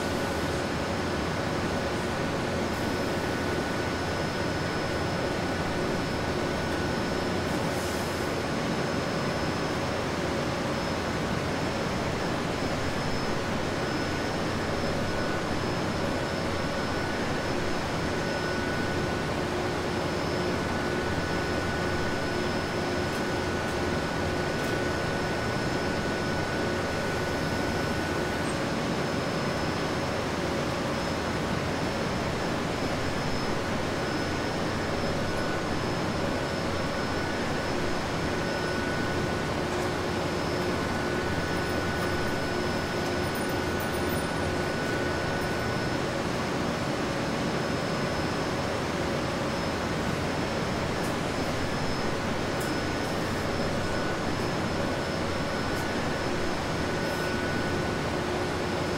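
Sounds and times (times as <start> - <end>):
machinery and ventilation hum: 0.0 - 58.9
thin whining tones: 32.4 - 46.1, 50.7 - 58.9.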